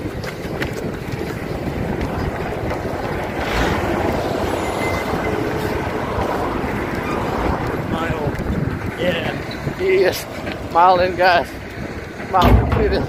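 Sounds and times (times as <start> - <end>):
truck passing: 0.8 - 12.4
car passing: 0.9 - 12.4.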